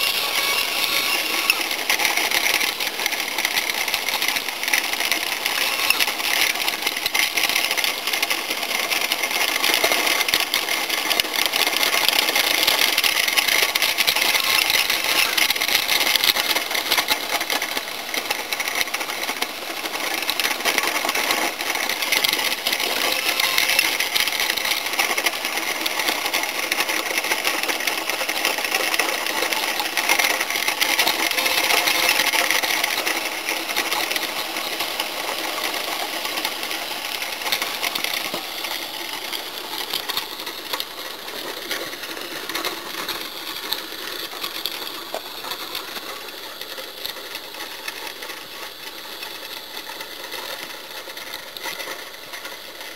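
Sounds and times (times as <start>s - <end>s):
small motor whirring buzz: 0.0s - 8.8s.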